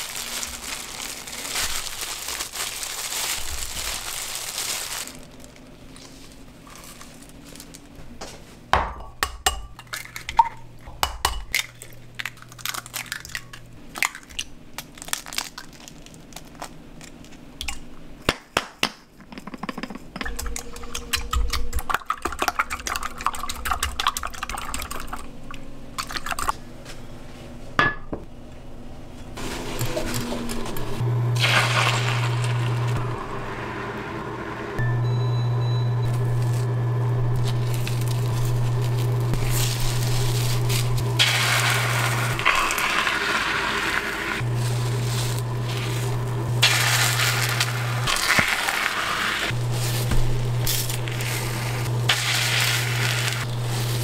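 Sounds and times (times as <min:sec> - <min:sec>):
plastic gloves crinkling: 0:00.0 - 0:08.6, 0:11.5 - 0:17.5, 0:29.4 - 0:33.0, 0:36.1 - 0:54.0
eggs cracking into glass jug: 0:09.5 - 0:18.4.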